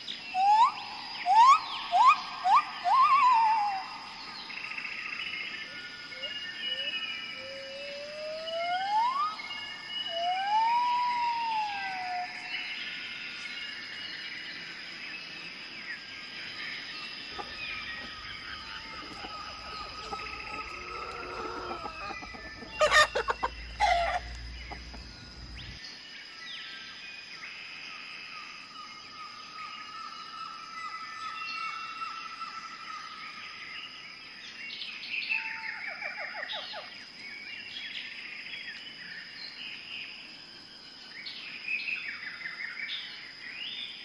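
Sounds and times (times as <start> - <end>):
birds chirping: 15.4 - 25.8
macaw call: 17.3 - 25.0
chickens and roosters clucking: 17.3 - 25.8.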